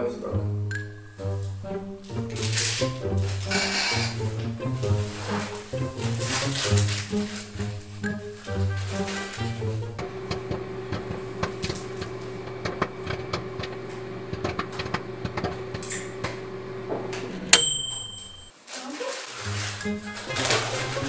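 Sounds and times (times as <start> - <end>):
microwave humming: 0.5 - 18.6
microwave ding: 0.7 - 1.2, 17.5 - 18.6
bag rustling and clicks: 2.3 - 9.8, 18.5 - 21.0.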